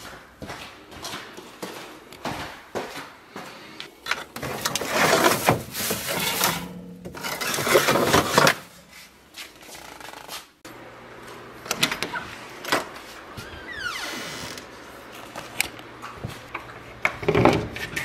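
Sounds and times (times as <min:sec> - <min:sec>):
rustling and scraping: 0:04.0 - 0:10.6.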